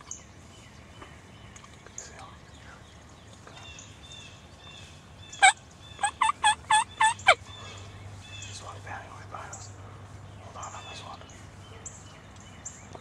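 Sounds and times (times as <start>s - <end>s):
turkey gobbling: 5.4s - 7.5s.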